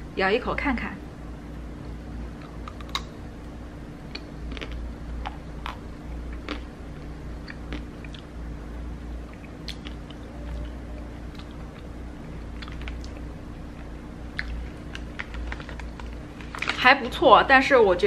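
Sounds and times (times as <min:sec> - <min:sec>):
steady low hum: 0:00.0 - 0:18.0
crunching ice cream coating: 0:02.3 - 0:03.2, 0:04.0 - 0:08.4, 0:09.2 - 0:17.2
chewing: 0:04.1 - 0:08.3, 0:09.3 - 0:16.8.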